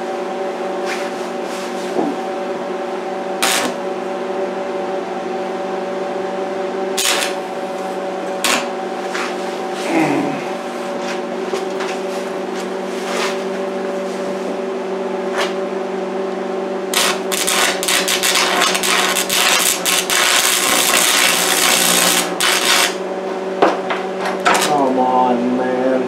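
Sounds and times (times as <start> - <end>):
steady hum: 0.0 - 26.0
welding arc crackling: 3.4 - 3.8, 7.0 - 7.6, 8.4 - 8.8, 16.9 - 23.0, 24.4 - 24.8.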